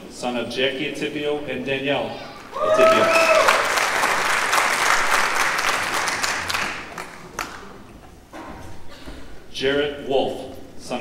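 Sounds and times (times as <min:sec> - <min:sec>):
audience applauding: 0:02.6 - 0:07.7.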